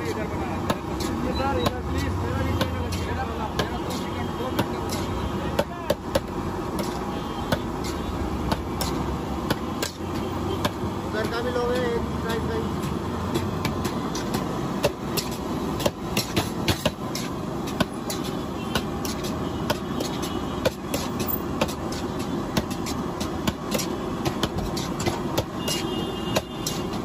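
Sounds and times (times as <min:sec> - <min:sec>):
metal spatula scraping steel pan: 0:00.9 - 0:03.2, 0:03.8 - 0:05.4, 0:06.7 - 0:09.1, 0:13.8 - 0:24.0, 0:24.6 - 0:27.0.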